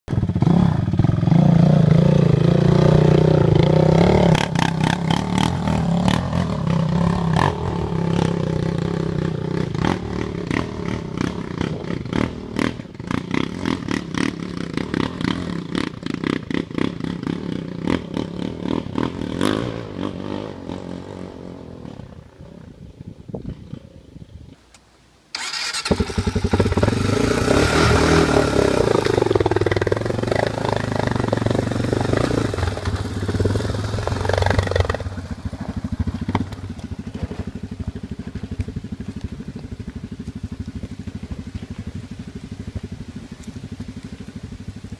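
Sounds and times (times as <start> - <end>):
quad engines revving: 0.1 - 22.0, 25.4 - 37.6
quad revving loudly close by: 0.1 - 22.4, 25.3 - 44.9.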